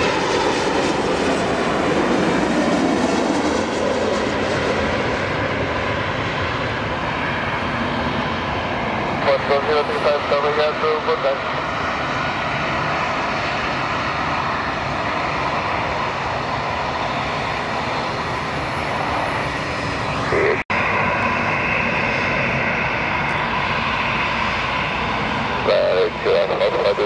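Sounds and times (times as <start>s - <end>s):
jet engine whine: 0.0s - 27.0s
jet engines rushing: 0.0s - 27.0s.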